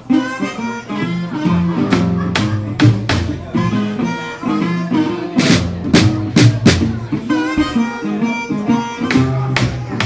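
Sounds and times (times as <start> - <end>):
harmonica melody: 0.0 - 10.0
upright bass notes: 0.0 - 10.0
large drum struck with stick: 2.0 - 3.5, 5.4 - 7.1.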